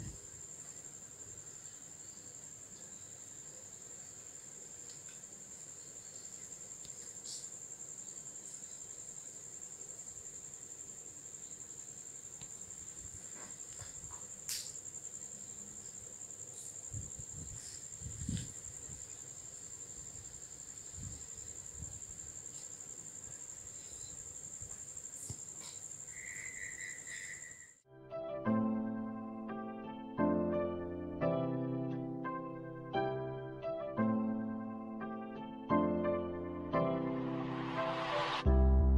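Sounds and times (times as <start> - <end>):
insects trilling: 0.0 - 27.8.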